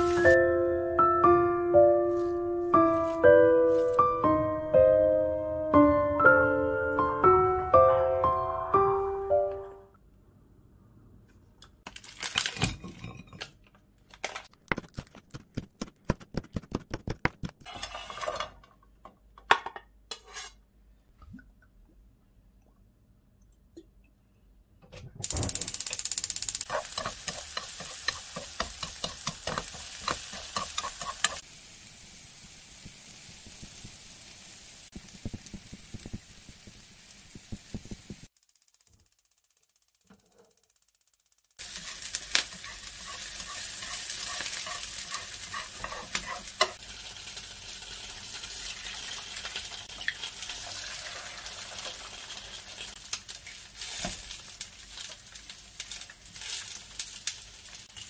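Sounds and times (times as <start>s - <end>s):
onions sizzling in oil: 0.0s - 0.4s, 26.6s - 38.3s, 41.6s - 58.0s
eggs frying: 25.3s - 40.0s, 40.7s - 58.0s.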